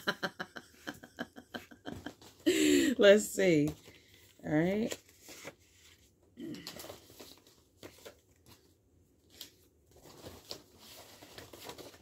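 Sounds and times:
cards shuffling and rustling: 3.6 - 8.7, 9.3 - 12.0.

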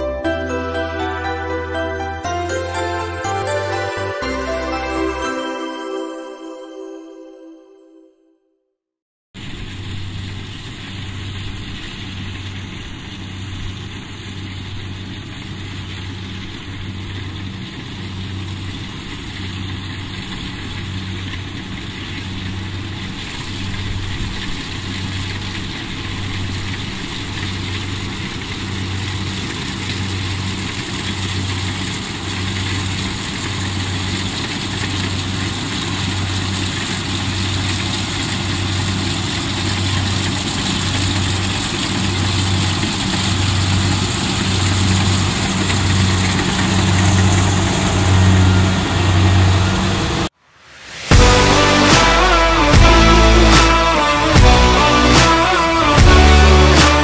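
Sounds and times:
combine harvester engine din: 9.8 - 50.3.

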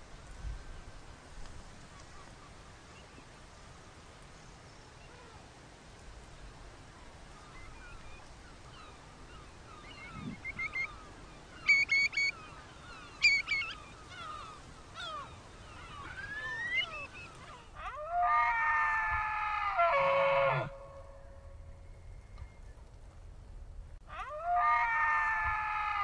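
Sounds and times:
curlew calling: 7.0 - 22.8, 24.1 - 26.0
elk bugling: 15.7 - 21.1.

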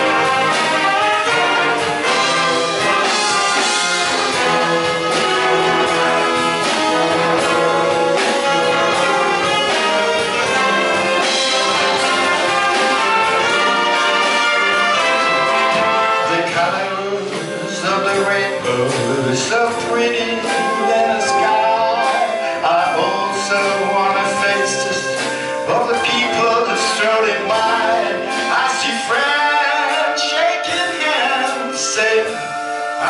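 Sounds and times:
wind band playing: 0.0 - 33.0.

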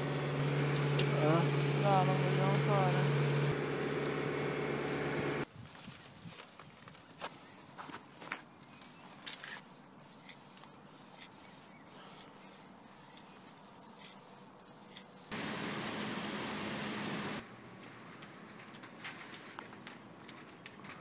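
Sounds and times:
truck unloading grain: 0.0 - 5.4, 15.3 - 17.4
spray can hissing: 9.5 - 17.4.

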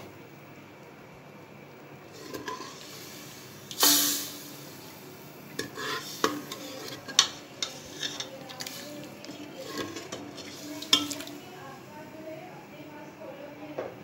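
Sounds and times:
chicken sizzling in hot oil: 2.0 - 11.6
metal spoon stirring in pot: 2.1 - 3.9, 5.5 - 11.6
spoon clinking against pot: 9.7 - 11.4.

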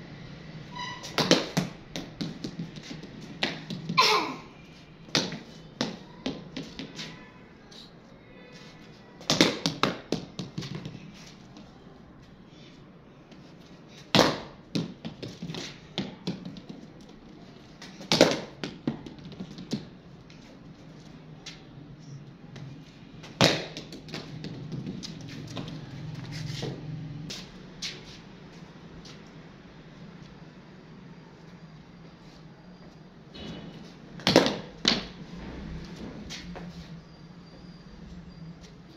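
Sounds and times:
ball bouncing on concrete: 1.0 - 4.2, 5.0 - 7.2, 9.2 - 11.7, 13.3 - 20.5, 22.5 - 27.9, 34.2 - 35.2
cricket bat hitting ball: 1.1 - 4.2, 9.3 - 10.9, 14.2 - 16.7, 18.0 - 19.8, 23.4 - 25.0, 34.2 - 35.2.

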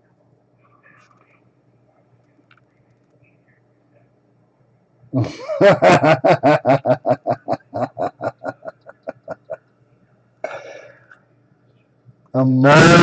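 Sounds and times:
person laughing: 5.2 - 9.6.

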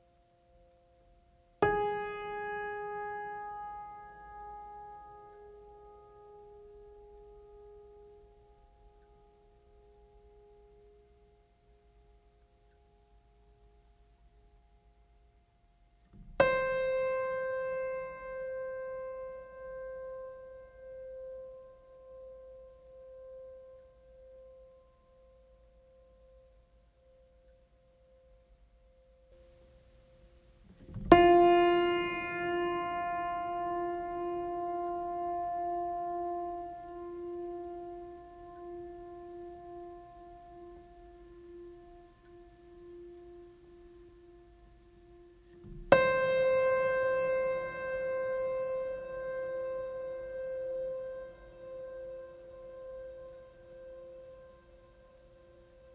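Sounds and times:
faint sustained music tones: 0.0 - 55.9
piano note ringing: 16.2 - 24.4, 30.8 - 55.9.

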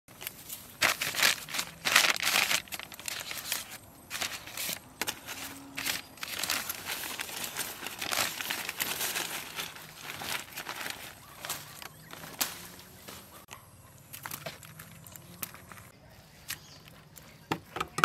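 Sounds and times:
newspaper rustling: 0.1 - 13.5.

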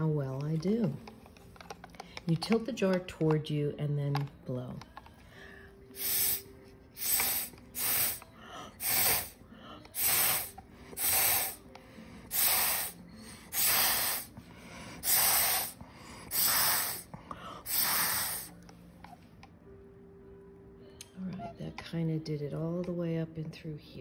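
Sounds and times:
hissing puffs of breath: 5.3 - 18.6.

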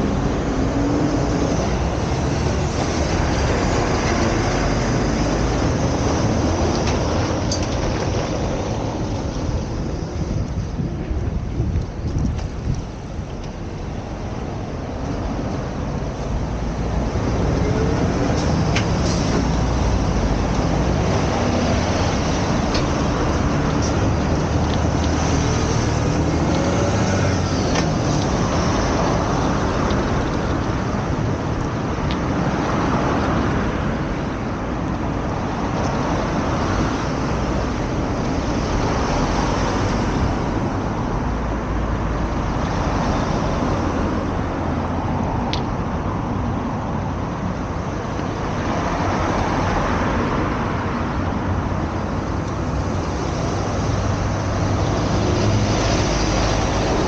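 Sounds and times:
low traffic rumble: 0.0 - 57.0
vehicles passing: 0.0 - 57.0
engine revving pulling away: 18.4 - 30.1.

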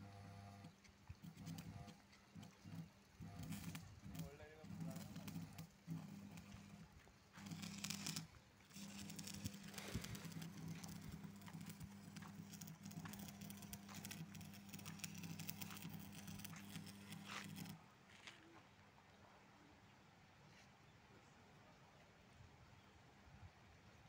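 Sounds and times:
arc welding crackle and hum: 0.0 - 17.8.

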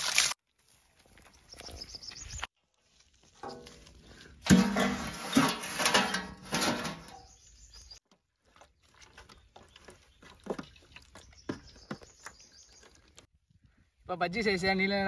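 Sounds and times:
metal tray clattering and ringing: 4.5 - 7.3.

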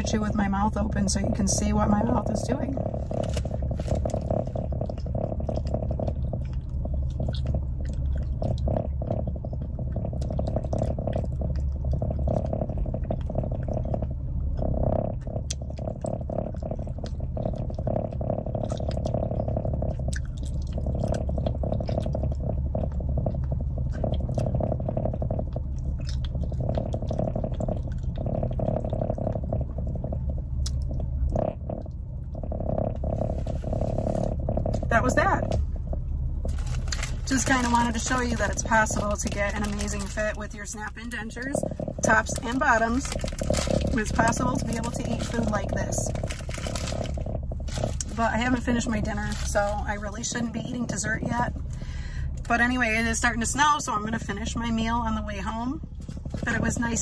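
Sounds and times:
steady low hum: 0.0 - 57.0
wet chewing smacks and clicks: 3.1 - 34.8.

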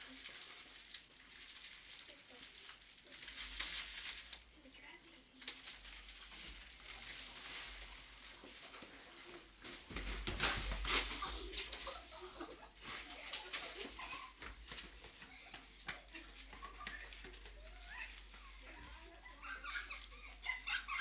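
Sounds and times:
footsteps scuffing on concrete: 14.2 - 18.9.

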